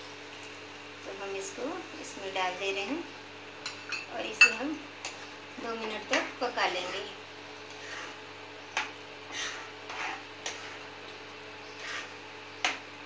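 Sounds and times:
steady background hum: 0:00.0 - 0:13.0
spoon scraping a pan: 0:05.9 - 0:11.0, 0:11.6 - 0:12.8.

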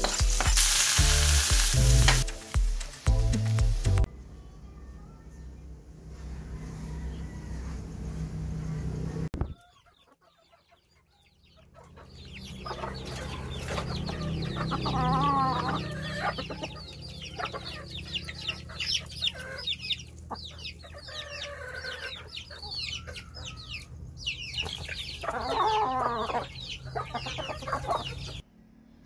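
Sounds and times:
chicks peeping: 0:08.6 - 0:28.4
hens clucking: 0:09.4 - 0:28.4.

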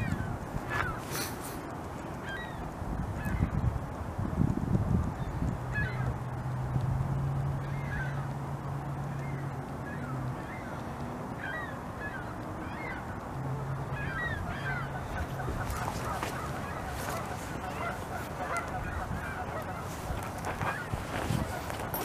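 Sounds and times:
geese honking: 0:00.0 - 0:01.4, 0:07.5 - 0:22.0.

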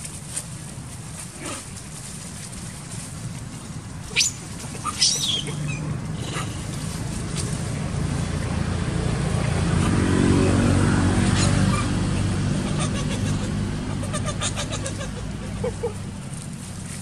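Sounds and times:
vehicle engine humming: 0:00.0 - 0:17.0.

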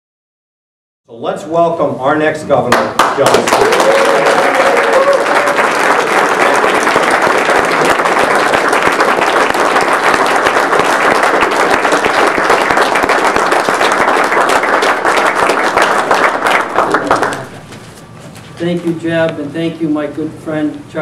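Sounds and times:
crowd applauding: 0:02.7 - 0:17.7.

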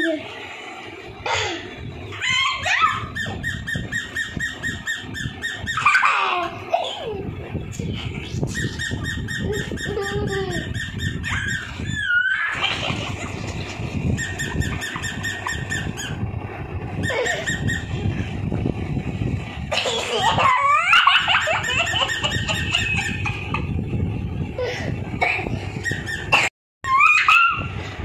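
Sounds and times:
high squealing glides: 0:07.6 - 0:18.6.

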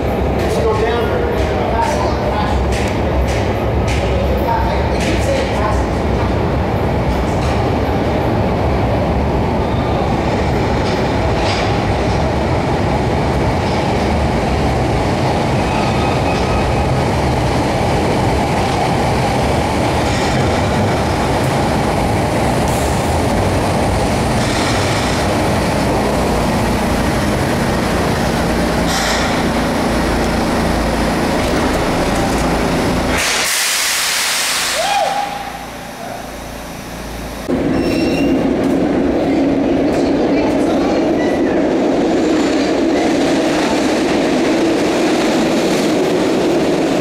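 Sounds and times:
subway train braking: 0:00.0 - 0:47.0
air hiss: 0:33.1 - 0:36.6.

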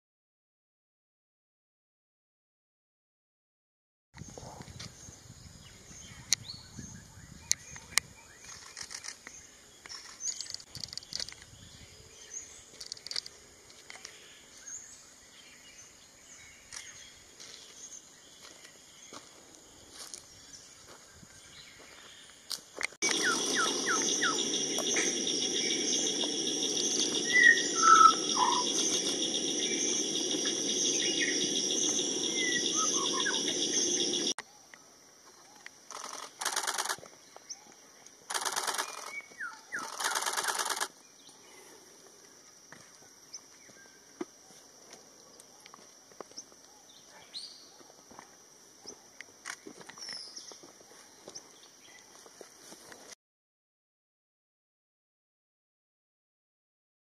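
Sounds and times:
bird whistling: 0:23.0 - 0:34.3
loud buzzing drone: 0:23.0 - 0:34.3
faint chirps: 0:23.0 - 0:44.6.

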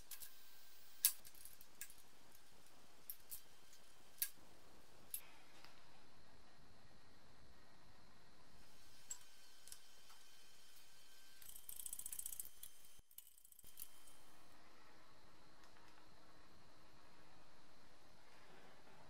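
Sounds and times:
ratchet-like clicking: 0:00.0 - 0:05.2, 0:08.8 - 0:14.5
room tone hiss: 0:00.0 - 0:19.0.

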